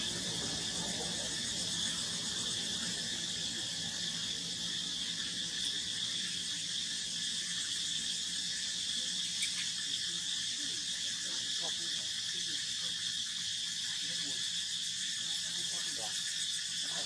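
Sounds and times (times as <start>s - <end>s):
insects buzzing: 0.0s - 17.0s.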